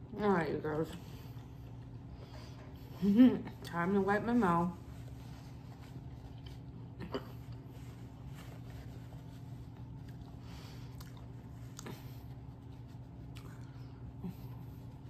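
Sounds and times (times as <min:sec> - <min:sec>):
steady low hum: 0:00.0 - 0:15.0
paper napkin rustling on face: 0:04.0 - 0:06.7, 0:07.4 - 0:10.6.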